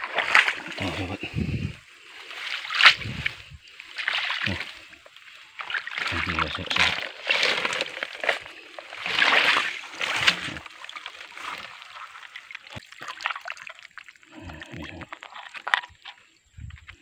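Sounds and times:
grass rustling: 0:00.0 - 0:12.9
water splashing and sloshing: 0:00.0 - 0:17.0.

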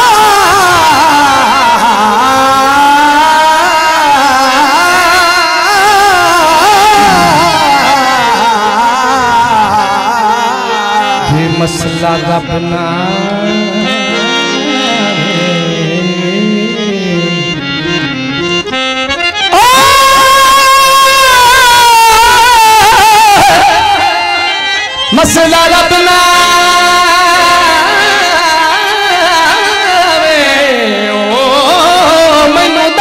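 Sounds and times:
man singing into a microphone: 0:00.0 - 0:33.0
loud long held note: 0:06.6 - 0:08.8
instrumental folk melody: 0:09.8 - 0:20.0.

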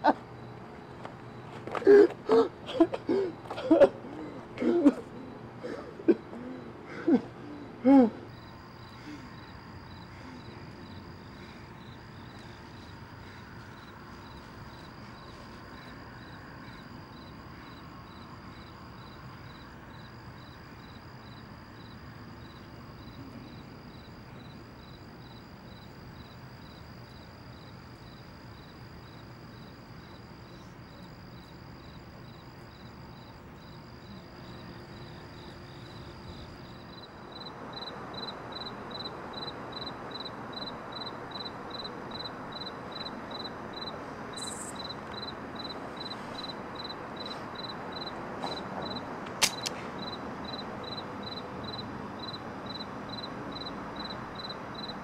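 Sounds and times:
crickets chirping: 0:00.0 - 0:55.0
high insect trill: 0:00.0 - 0:55.0
man's strained vocal sound: 0:01.8 - 0:08.3.

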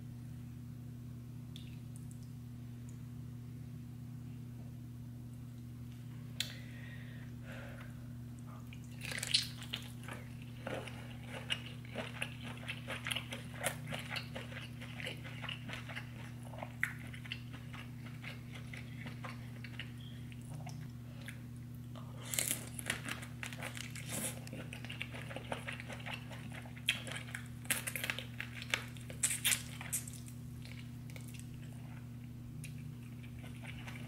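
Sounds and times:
low electrical hum: 0:00.0 - 0:34.0
wet bites and chewing: 0:08.7 - 0:21.5, 0:22.2 - 0:34.0.

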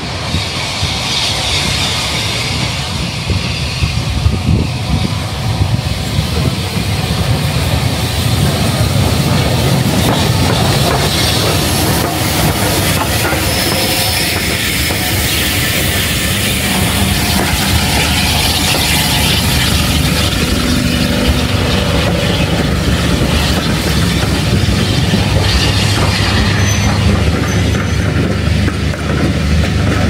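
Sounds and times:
hiss of steam: 0:00.0 - 0:27.7
steam locomotive rumbling past: 0:00.0 - 0:30.0
train wheels clicking over rail joints: 0:00.0 - 0:30.0.

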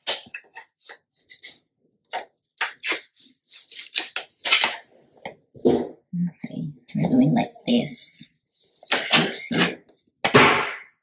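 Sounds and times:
paper rustling: 0:02.6 - 0:04.9.

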